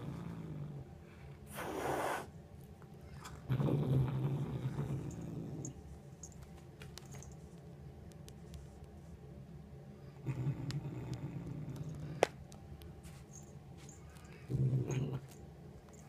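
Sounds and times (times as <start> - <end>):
cat growling: 0.0 - 2.3, 3.2 - 5.8, 10.2 - 12.2, 14.4 - 15.4.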